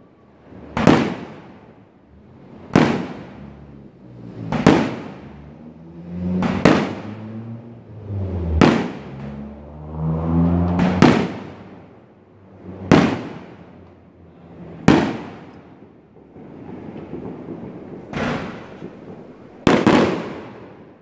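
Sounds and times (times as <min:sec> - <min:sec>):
firework shells booming: 0:00.6 - 0:03.7, 0:04.4 - 0:05.6, 0:06.4 - 0:09.5, 0:10.4 - 0:12.0, 0:12.6 - 0:14.0, 0:14.7 - 0:21.0.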